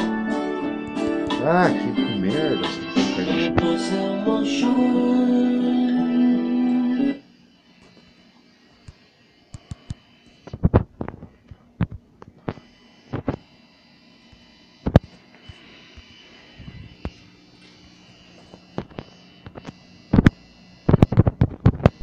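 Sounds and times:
guitar music: 0.0s - 7.2s.

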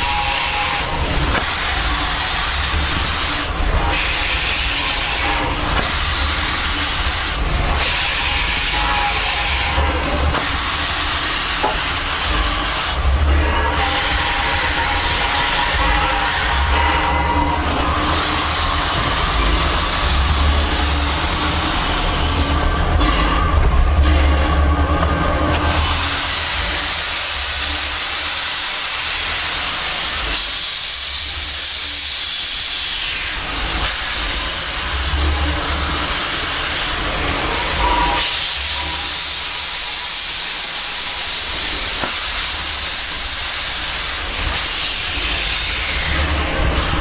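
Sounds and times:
steam locomotive hissing steam: 0.0s - 47.0s.

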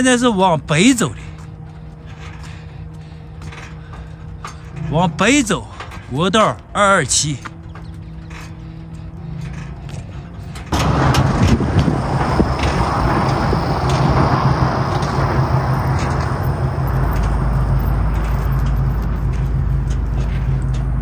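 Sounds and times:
road noise: 0.0s - 21.0s
vehicle engine running: 0.0s - 21.0s
deep rumble: 7.8s - 21.0s.

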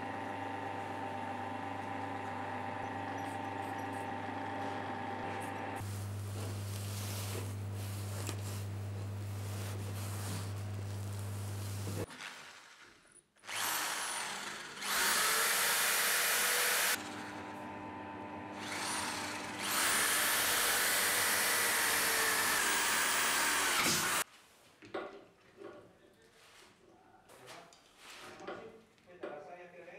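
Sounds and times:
cordless drill running: 13.4s - 24.2s.

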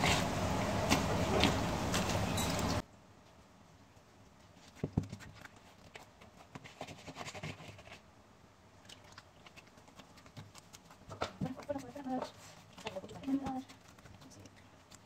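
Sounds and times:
hands kneading dough: 3.9s - 8.1s, 8.7s - 15.0s.

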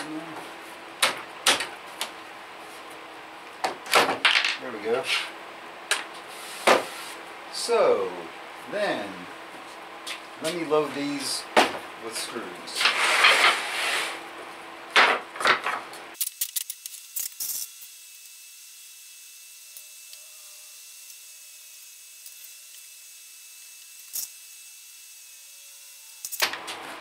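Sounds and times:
wooden slats scraping and knocking: 6.1s - 7.2s, 11.6s - 14.2s, 14.9s - 15.9s.

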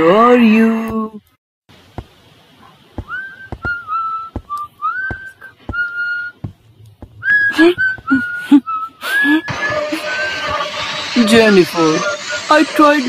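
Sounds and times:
footsteps on wooden floor: 3.0s - 3.8s, 4.4s - 8.2s
man whistling a slow tune: 3.0s - 6.4s, 7.2s - 10.2s.

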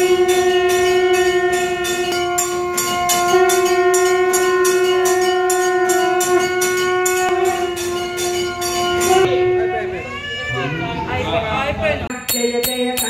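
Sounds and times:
horn-like tone: 0.0s - 10.1s.

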